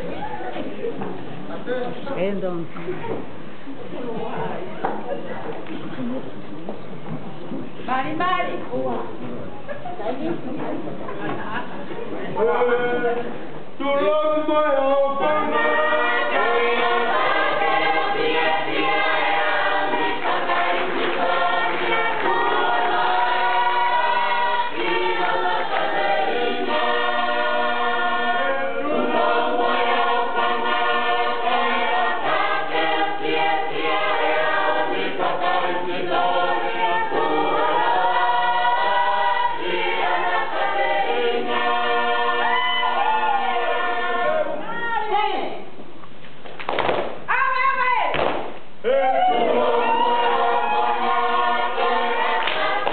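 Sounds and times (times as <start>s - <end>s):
choir singing in harmony: 13.8s - 44.7s, 49.2s - 52.9s.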